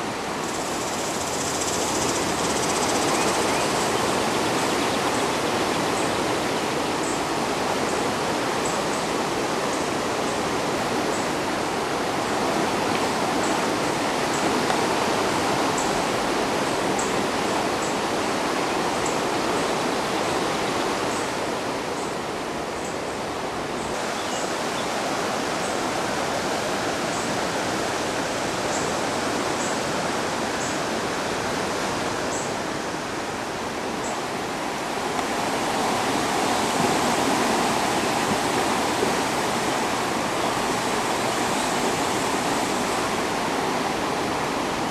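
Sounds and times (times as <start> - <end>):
river rushing: 0.0 - 44.9.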